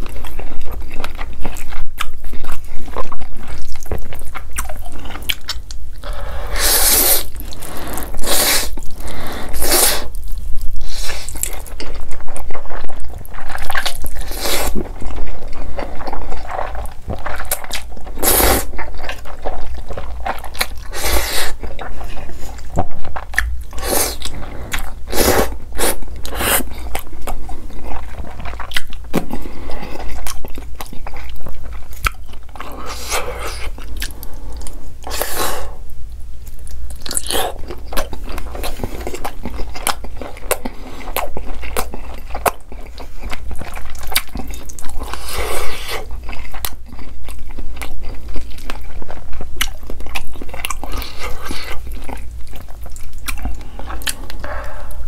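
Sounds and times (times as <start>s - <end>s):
sausage bitten and chewed: 36.4s - 55.0s.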